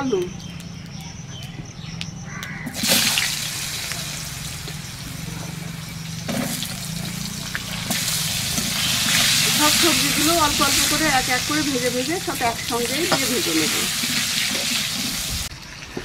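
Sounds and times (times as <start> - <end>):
potatoes sizzling in hot oil: 2.7 - 5.2, 5.8 - 15.6.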